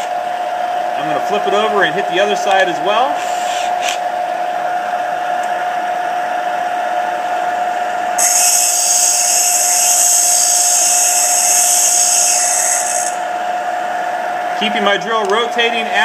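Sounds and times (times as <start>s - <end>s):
bench grinder whining: 6.8s - 14.7s
high-pitched grinding hiss: 8.2s - 13.3s.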